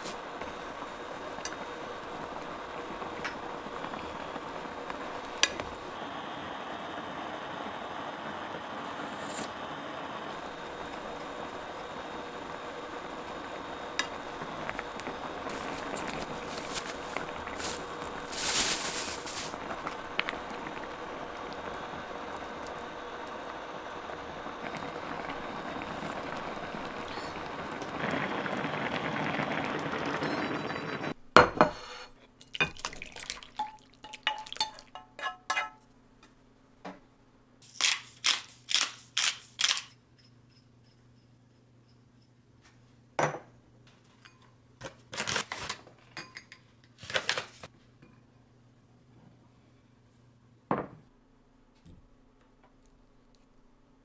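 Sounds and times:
soup boiling in a pot: 0.0s - 31.1s, 32.4s - 35.6s
spoon clinking on pot: 33.6s - 35.8s
dishes and utensils knocking: 34.0s - 35.8s.

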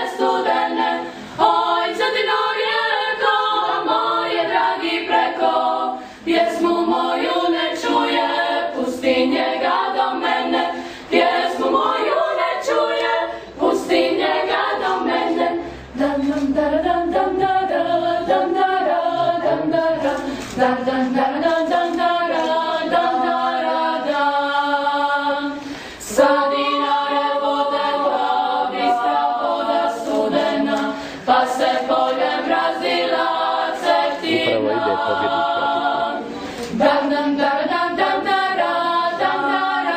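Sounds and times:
choir singing a cappella: 0.0s - 39.9s.

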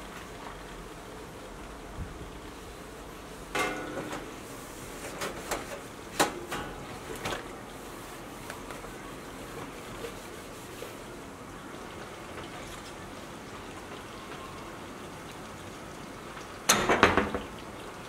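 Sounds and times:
clicks and knocks in metal sink: 3.5s - 4.4s, 5.2s - 7.4s, 16.7s - 17.6s.

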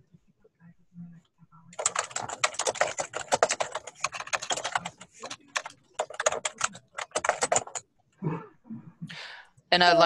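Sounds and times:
rapid typing on keyboard: 1.7s - 7.9s.

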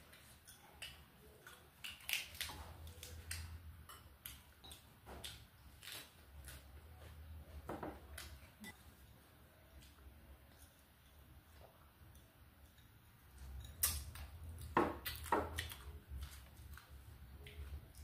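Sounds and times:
chewing: 0.1s - 7.2s, 8.1s - 18.0s.

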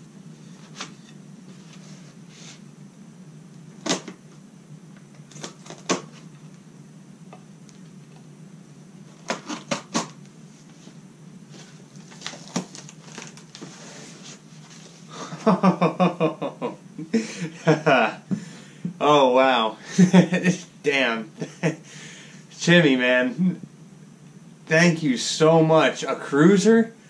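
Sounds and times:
paper and tape tearing: 9.2s - 10.1s
man laughing: 15.1s - 18.3s, 19.8s - 21.9s.

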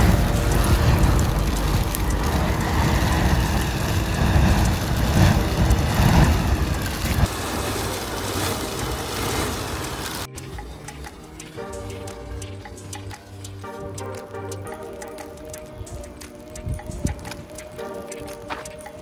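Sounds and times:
rush of flame: 0.0s - 10.3s.

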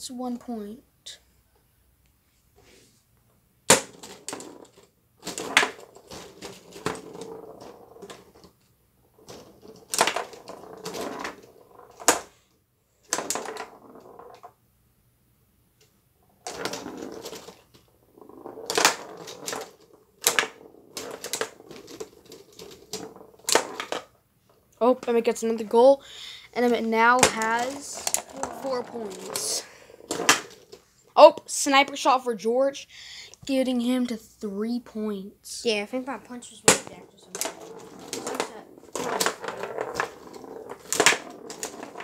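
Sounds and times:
foosball players clacking: 3.7s - 8.6s, 9.2s - 12.4s, 13.0s - 14.5s, 16.4s - 24.2s, 26.6s - 30.8s, 36.6s - 42.0s.

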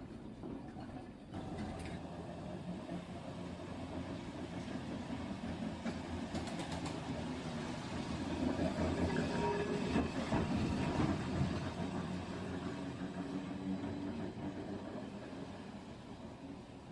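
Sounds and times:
model tram motor humming: 1.1s - 16.9s
wheels clicking over track: 1.4s - 7.6s.

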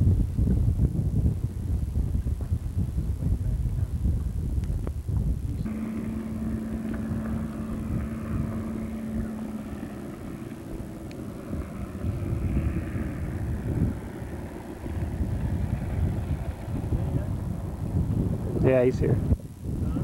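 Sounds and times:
wind rumbling on microphone: 0.0s - 20.0s
distant outboard motor humming: 5.6s - 19.2s.

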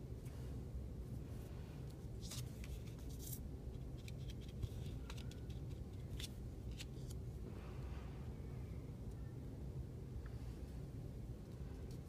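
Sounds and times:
steady low hum: 0.0s - 12.0s
paper rustling and scratching: 2.2s - 7.2s.

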